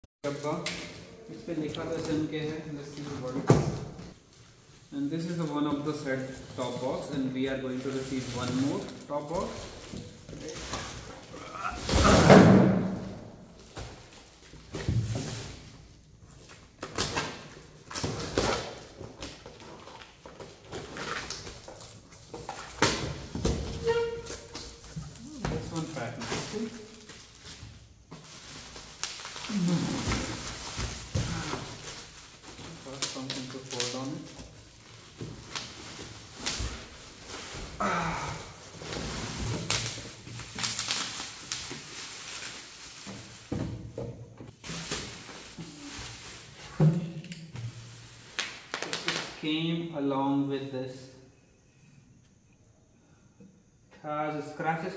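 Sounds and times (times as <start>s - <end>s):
packaging rustling: 24.2s - 37.8s, 38.5s - 43.5s.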